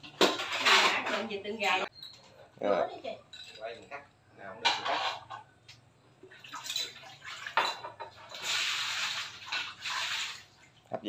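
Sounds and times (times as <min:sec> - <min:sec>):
water splashing: 0:08.2 - 0:11.0.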